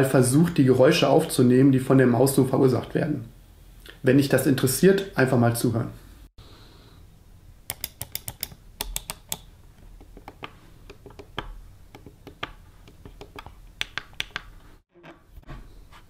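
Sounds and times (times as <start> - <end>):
mouse clicking: 7.7 - 14.5.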